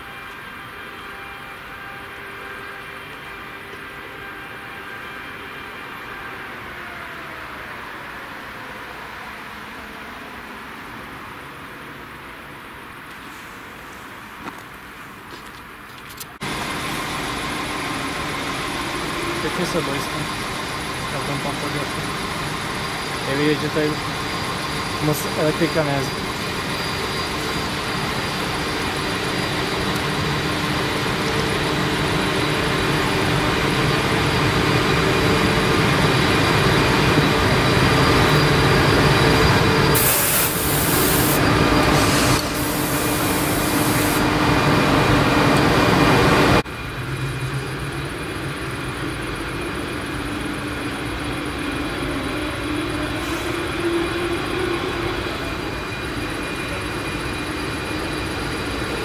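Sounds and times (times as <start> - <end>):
train wheels on rails: 13.0 - 59.0
electric train humming: 16.4 - 59.0
short bursts of hiss: 40.0 - 41.4.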